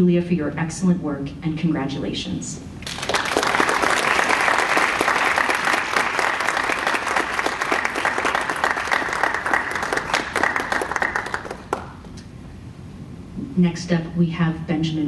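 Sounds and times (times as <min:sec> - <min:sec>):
audience applauding: 0:02.8 - 0:12.1.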